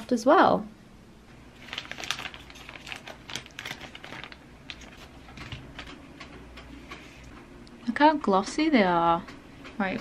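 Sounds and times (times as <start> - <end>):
plastic bag crinkling: 1.5 - 5.9.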